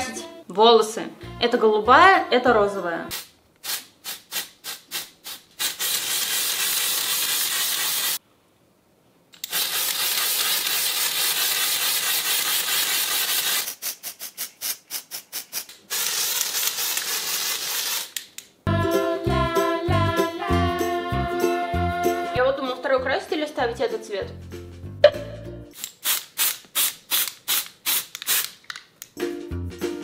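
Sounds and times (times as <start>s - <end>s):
music: 0.0s - 0.5s, 1.2s - 3.1s, 18.7s - 25.8s, 29.1s - 30.0s
aerosol spray hissing: 3.1s - 8.2s, 9.4s - 18.1s, 26.0s - 28.5s.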